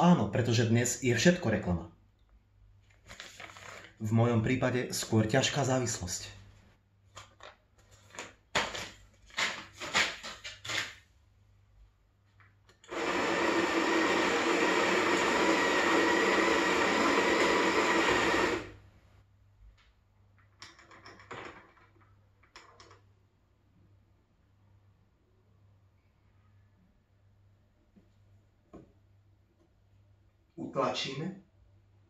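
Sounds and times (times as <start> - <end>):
coffee packets rustling: 2.9 - 4.0, 7.1 - 11.0
coffee grinder running: 12.8 - 18.8.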